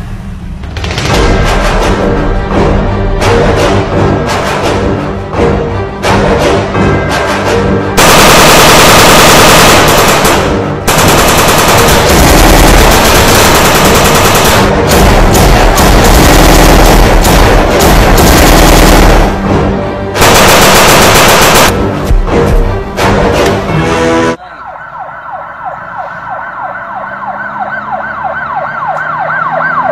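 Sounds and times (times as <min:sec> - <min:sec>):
background music: 0:00.4 - 0:24.6
rapid machine-gun fire: 0:08.0 - 0:19.4, 0:20.2 - 0:21.7.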